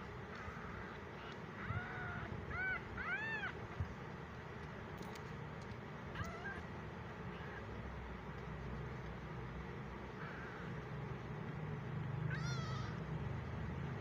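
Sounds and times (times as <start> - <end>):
kitten mewing: 6.1 - 6.7, 12.3 - 13.0.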